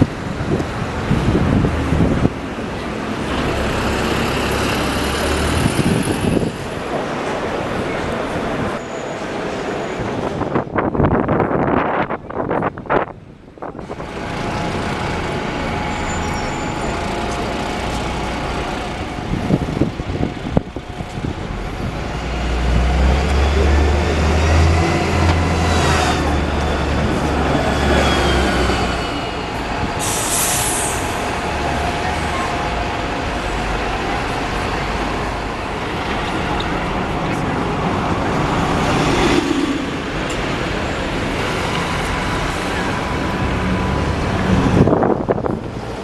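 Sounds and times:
bus engine rumble: 0:00.0 - 0:46.0
street traffic: 0:00.0 - 0:46.0
air brakes hissing: 0:29.8 - 0:31.3.

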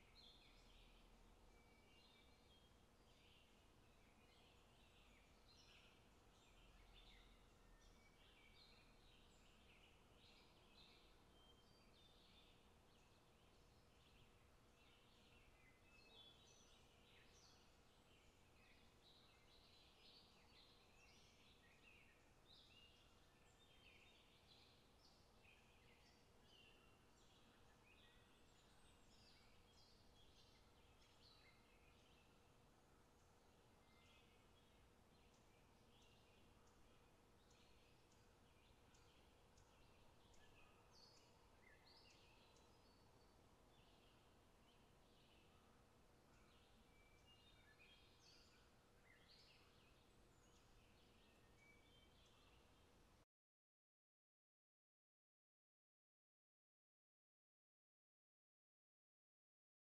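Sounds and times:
faint steady hum: 0:00.0 - 0:53.2
bird chirps: 0:33.8 - 0:45.7.

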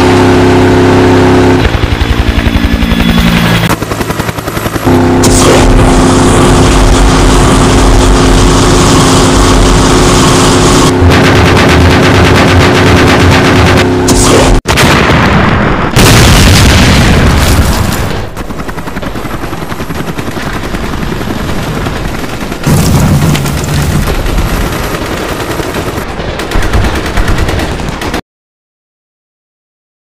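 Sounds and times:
machine-gun fire: 0:03.7 - 0:28.2.

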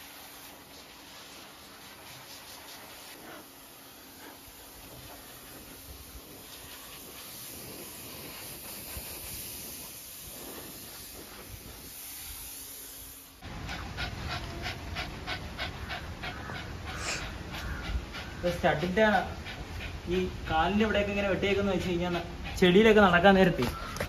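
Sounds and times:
pet blower airy hiss: 0:00.0 - 0:14.8, 0:16.9 - 0:23.4
dog panting quickly: 0:13.4 - 0:24.0.

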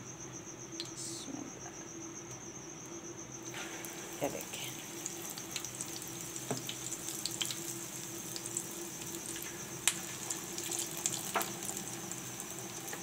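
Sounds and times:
fritters sizzling in hot oil: 0:03.5 - 0:13.0.

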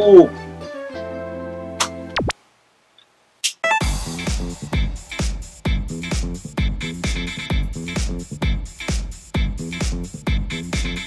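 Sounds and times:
electronic dance music: 0:03.4 - 0:11.0
noise sweep: 0:03.4 - 0:11.0
quick run of notes: 0:03.6 - 0:11.0.

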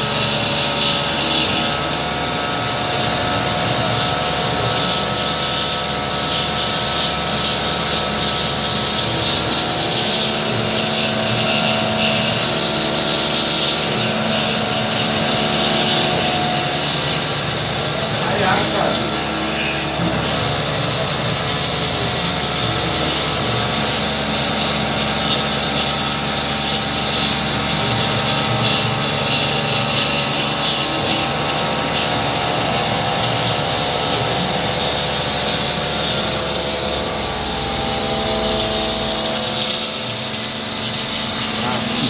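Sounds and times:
milling machine spindle cutting metal: 0:00.0 - 0:42.0
high whine: 0:30.1 - 0:42.0.

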